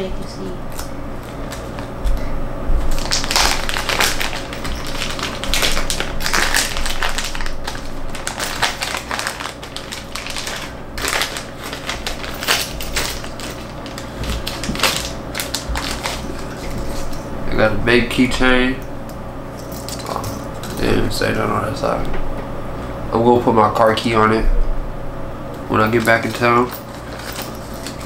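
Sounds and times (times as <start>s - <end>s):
plastic packaging crinkling: 2.8s - 17.3s, 25.8s - 28.0s.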